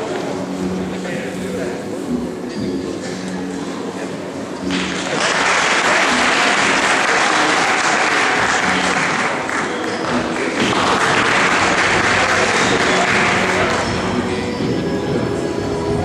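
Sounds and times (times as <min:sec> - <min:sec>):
audience applauding: 0:04.7 - 0:14.2.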